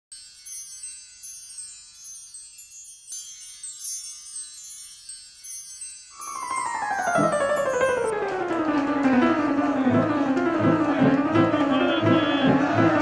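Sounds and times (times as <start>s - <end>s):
shimmering chime music: 0.1s - 10.3s.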